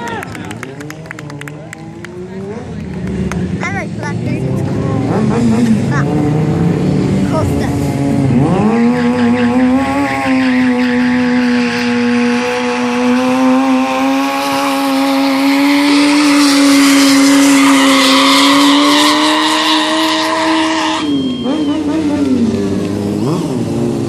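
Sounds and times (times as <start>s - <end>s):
motorcycle engine revving: 0.0s - 24.0s
tyres squealing on pavement: 16.4s - 22.3s.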